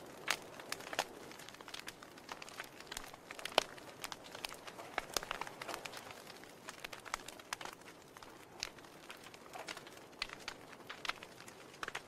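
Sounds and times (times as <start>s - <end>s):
wood fire crackling: 0.0s - 12.0s.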